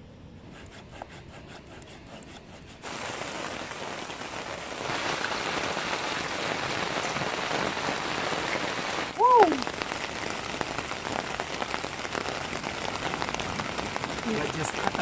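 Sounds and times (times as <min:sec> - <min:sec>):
hand saw cutting wood: 0:00.5 - 0:02.8
heavy rain hissing: 0:02.8 - 0:15.0.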